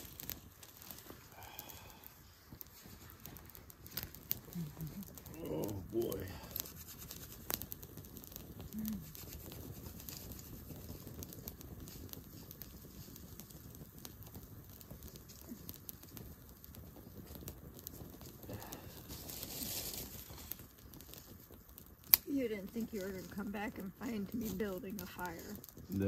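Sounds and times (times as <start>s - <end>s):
campfire crackling and popping: 0.0s - 26.0s
rustling: 0.0s - 26.0s.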